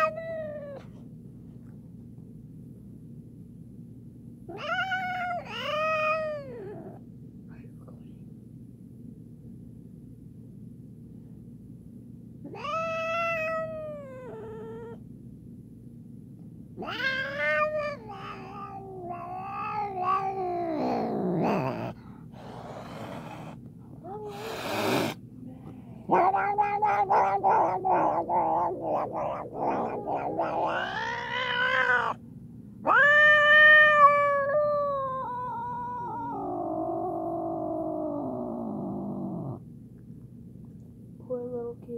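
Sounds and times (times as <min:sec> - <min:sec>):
cat yowling: 0:00.0 - 0:00.8, 0:04.5 - 0:07.0, 0:12.5 - 0:15.0, 0:16.8 - 0:25.2, 0:26.1 - 0:32.2, 0:32.8 - 0:39.6.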